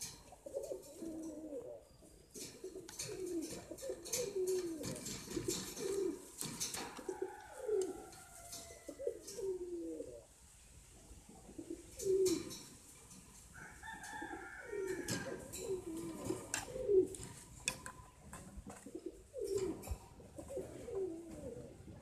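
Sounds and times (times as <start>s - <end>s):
pigeons cooing: 0.0s - 10.3s, 11.0s - 22.0s
clicks and rustles: 2.3s - 9.6s.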